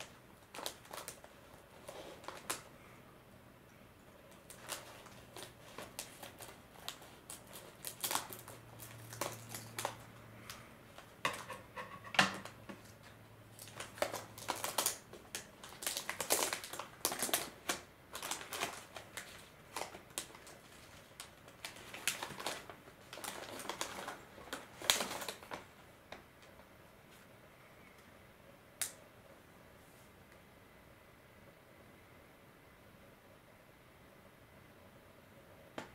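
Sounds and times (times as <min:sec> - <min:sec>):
foil packet tearing and crinkling: 0:00.0 - 0:02.7, 0:04.3 - 0:10.6, 0:13.6 - 0:25.7.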